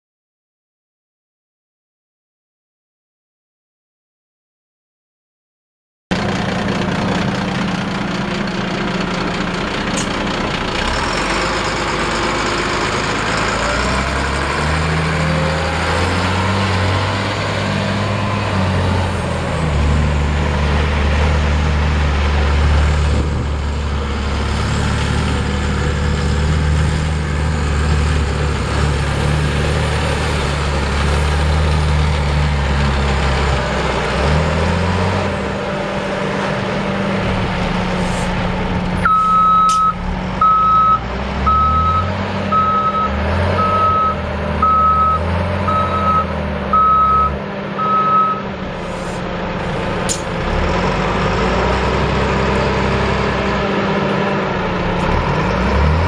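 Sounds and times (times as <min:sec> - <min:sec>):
truck diesel engine running: 0:06.1 - 0:56.0.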